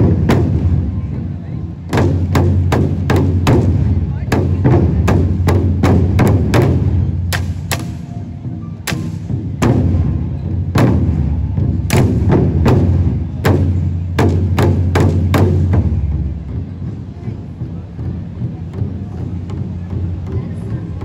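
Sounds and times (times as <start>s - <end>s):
barrel drums struck in unison: 0.0s - 21.0s.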